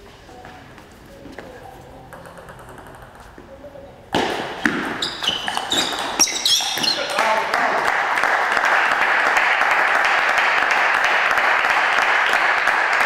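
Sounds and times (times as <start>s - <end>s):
table tennis ball hits: 2.1s - 3.3s, 4.1s - 7.3s
shoes squeaking on floor: 4.2s - 7.4s.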